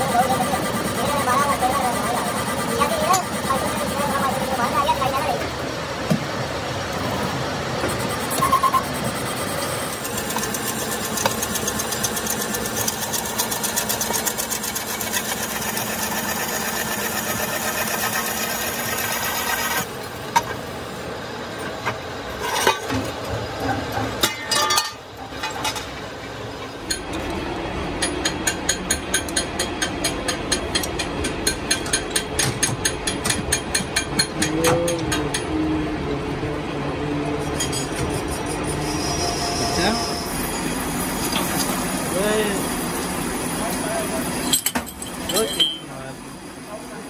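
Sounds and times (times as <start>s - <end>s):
metal lathe humming and whining: 7.0s - 19.9s, 38.1s - 43.8s.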